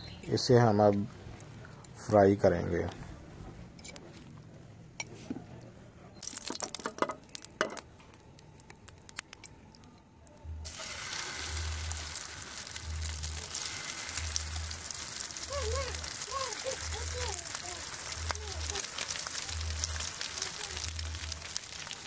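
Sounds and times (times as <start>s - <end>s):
hot oil sizzling: 6.2s - 7.5s, 10.6s - 22.0s.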